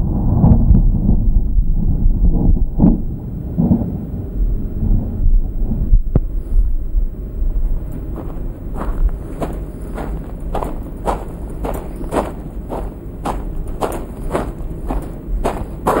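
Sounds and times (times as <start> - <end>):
low uneven rumbling: 0.0 - 16.0
footsteps on gravel: 7.7 - 16.0.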